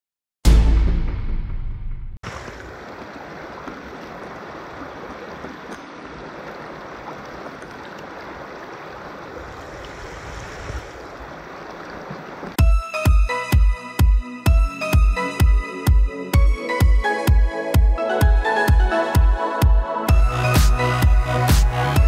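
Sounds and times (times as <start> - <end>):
floodwater rushing over rocks: 2.2 - 12.6.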